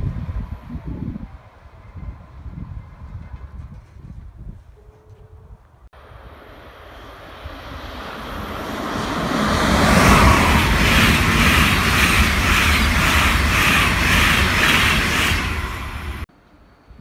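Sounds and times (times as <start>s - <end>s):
train rushing past: 6.0s - 16.3s
rhythmic beat of train wheels: 7.8s - 16.2s.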